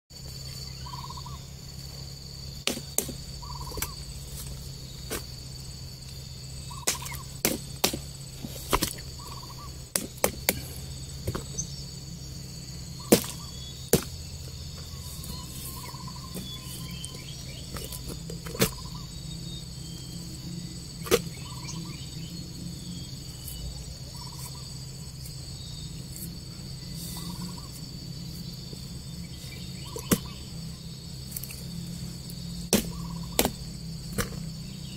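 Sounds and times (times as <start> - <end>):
insects buzzing: 0.1 - 34.9
roots knocking into basket: 13.1 - 14.2.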